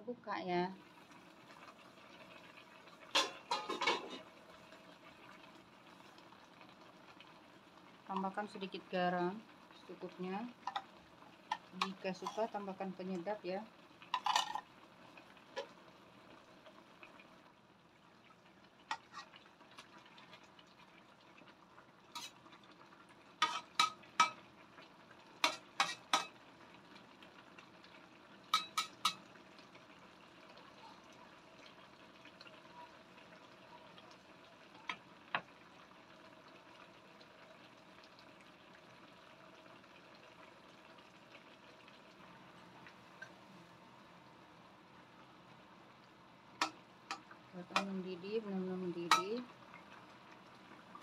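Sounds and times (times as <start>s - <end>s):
faint steady hiss: 0.0s - 51.0s
metal spatula clinking in wok: 28.6s - 29.2s.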